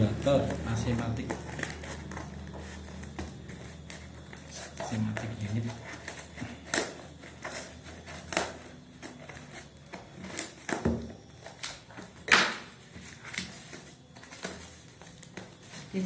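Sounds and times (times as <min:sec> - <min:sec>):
wrapping crinkling and rustling: 0:00.0 - 0:16.0
scissors snipping packing tape: 0:06.0 - 0:09.6.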